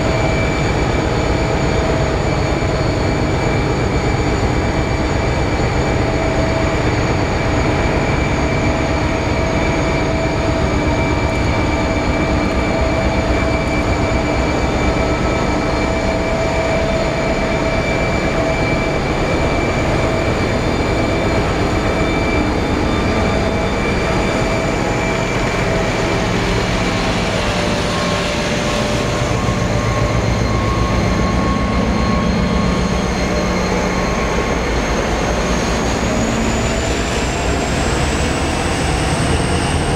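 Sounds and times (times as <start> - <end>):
diesel locomotives rumbling past: 0.0 - 39.9.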